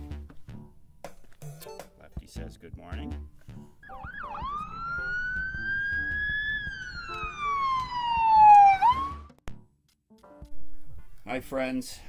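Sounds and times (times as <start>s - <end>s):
emergency siren wailing: 3.8s - 9.4s.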